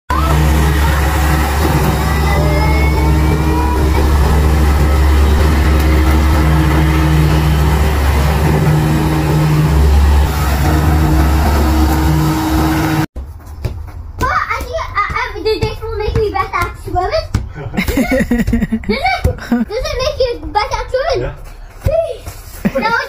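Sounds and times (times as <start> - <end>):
electric lawnmower motor hum: 0.1 - 13.1.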